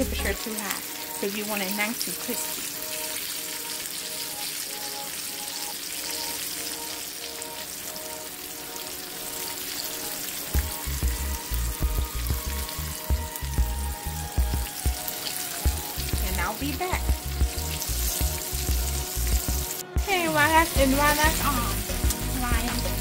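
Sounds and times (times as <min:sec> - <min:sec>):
background music: 0:00.0 - 0:23.0
chicken sizzling in hot oil: 0:00.0 - 0:23.0
heavy low thumping beat: 0:10.6 - 0:15.0, 0:15.6 - 0:23.0.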